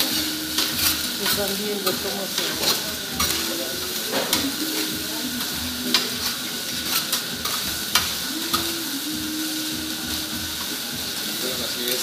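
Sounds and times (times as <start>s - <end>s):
metal spatulas scraping: 0.0s - 8.7s
food sizzling on griddle: 0.0s - 12.0s.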